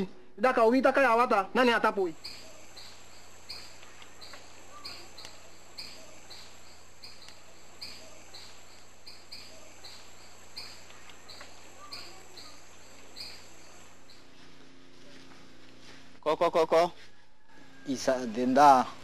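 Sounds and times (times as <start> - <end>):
high insect drone: 1.7 - 16.1.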